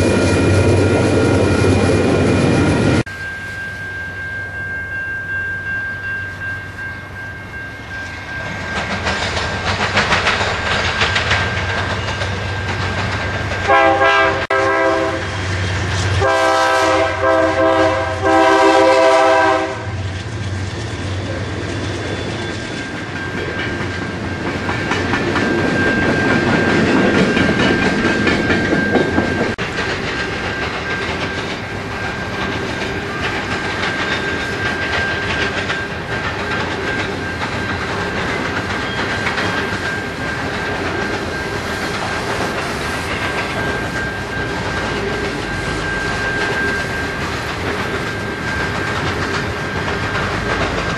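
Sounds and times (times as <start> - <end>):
locomotive air horn: 13.7 - 15.4, 16.1 - 20.0.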